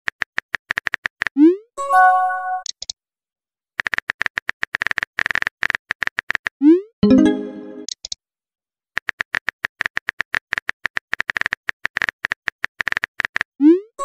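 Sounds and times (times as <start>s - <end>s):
message chime: 7.0s - 7.9s.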